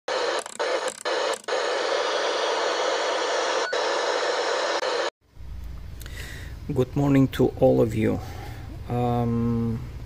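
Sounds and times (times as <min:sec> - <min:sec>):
radio static hiss: 0:00.1 - 0:05.1.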